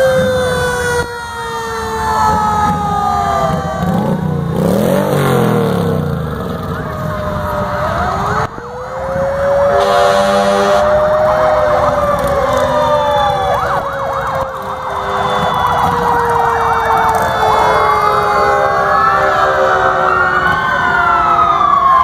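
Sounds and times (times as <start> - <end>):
emergency vehicle sirens wailing: 0.0 - 22.0
horn blast: 9.5 - 13.0, 14.5 - 20.5.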